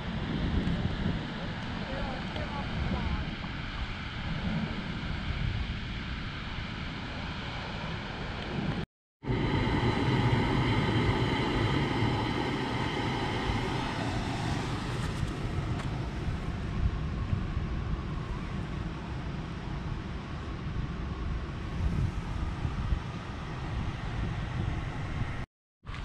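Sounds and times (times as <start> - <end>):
wind noise: 0.0 - 26.0
engine drone: 6.4 - 26.0
faint tonal hum: 9.3 - 19.2.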